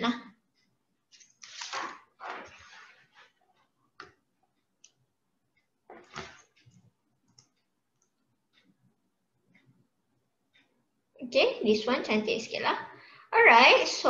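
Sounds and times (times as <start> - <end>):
faint clicks and taps: 2.4 - 11.0.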